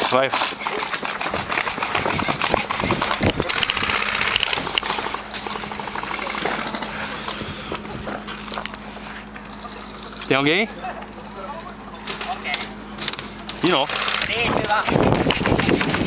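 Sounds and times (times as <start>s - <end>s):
airsoft guns firing bursts: 0.0s - 6.6s, 13.6s - 16.0s.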